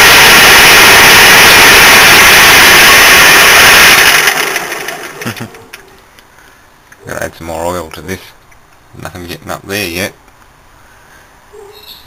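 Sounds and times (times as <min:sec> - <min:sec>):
lathe gears whirring: 0:00.0 - 0:05.2.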